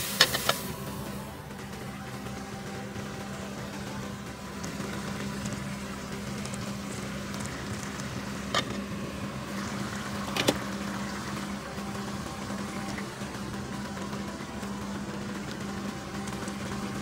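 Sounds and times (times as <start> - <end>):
low kitchen hum: 0.0 - 17.0.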